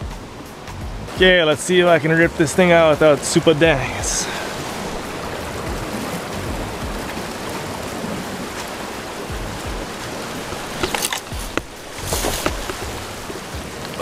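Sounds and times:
surf washing: 0.0s - 14.0s
rod whooshing: 9.8s - 13.2s
fishing rod and reel clicks: 10.5s - 13.0s.

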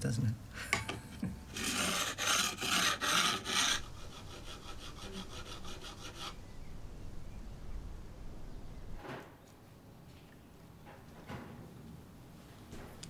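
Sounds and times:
hand tool scraping wood: 1.5s - 6.4s.

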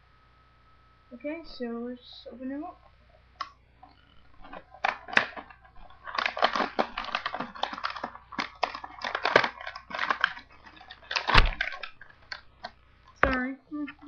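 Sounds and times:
packaging being torn open: 4.4s - 12.4s.

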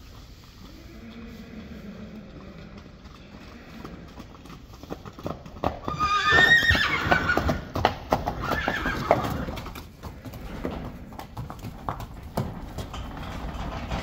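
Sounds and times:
hooves clopping on wet concrete: 0.0s - 14.0s
horse whinnying: 5.7s - 11.1s.

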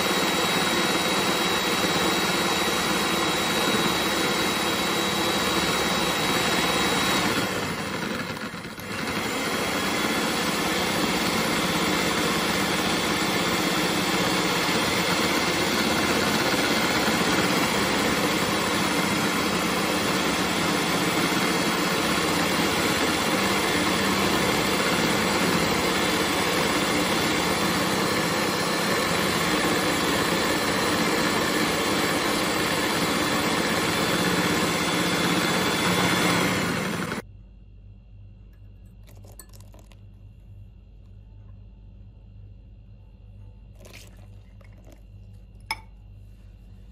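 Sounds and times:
electric hand mixer whisking: 0.0s - 37.2s.

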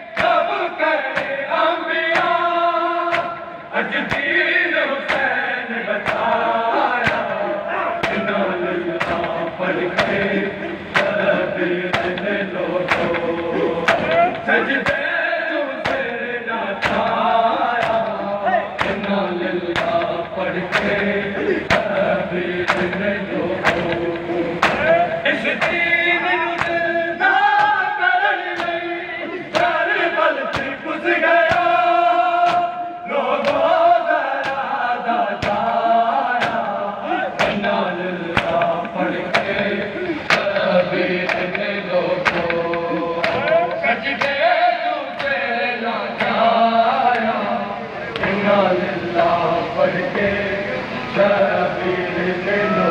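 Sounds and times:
crowd chanting: 0.0s - 52.9s
men singing a mourning lament: 0.0s - 52.9s
hands slapping bare chests: 3.1s - 3.4s, 11.0s - 11.2s, 12.9s - 13.3s, 13.9s - 15.0s, 17.8s - 18.2s, 18.8s - 19.1s, 21.7s - 22.0s, 23.6s - 24.0s, 24.6s - 24.9s, 32.5s - 32.7s, 36.4s - 36.7s, 37.4s - 37.6s, 40.3s - 40.7s, 41.3s - 43.5s.

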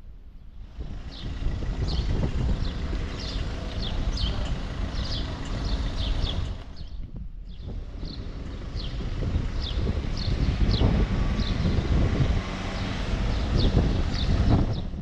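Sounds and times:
street traffic: 0.0s - 15.0s
wind rumbling on microphone: 0.0s - 15.0s
bird chirping: 0.4s - 11.9s.

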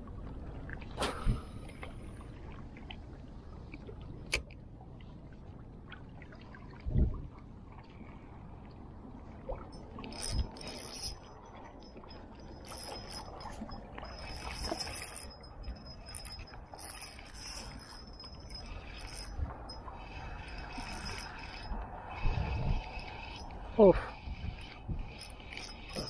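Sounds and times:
fishing reel whirring: 9.7s - 26.0s.

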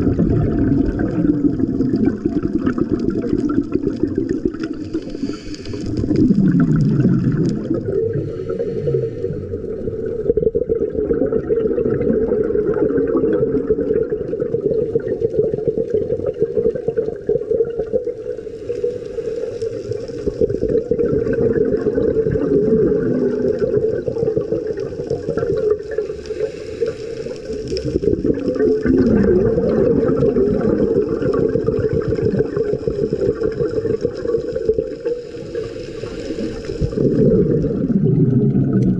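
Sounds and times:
underwater bubbling and rushing: 0.0s - 38.9s
hiss: 4.8s - 6.1s, 8.1s - 9.6s, 18.2s - 20.5s, 26.0s - 28.0s, 35.0s - 37.2s.

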